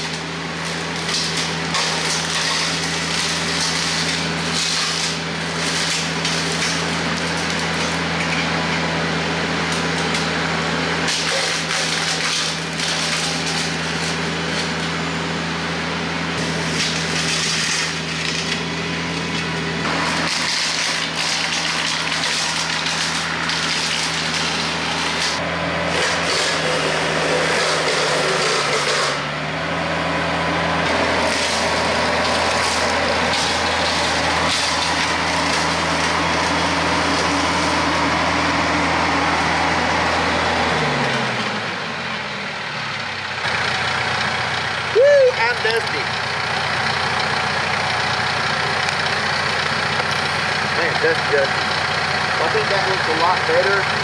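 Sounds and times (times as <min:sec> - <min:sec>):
rotary cutter chopping brush: 0:00.0 - 0:08.9, 0:11.0 - 0:15.0, 0:16.4 - 0:29.3, 0:30.7 - 0:41.6, 0:47.6 - 0:54.0
wood crackling and splintering: 0:00.0 - 0:08.9, 0:09.6 - 0:15.0, 0:16.4 - 0:29.3, 0:29.9 - 0:41.6, 0:43.4 - 0:54.0
tractor diesel engine drone: 0:00.0 - 0:54.0.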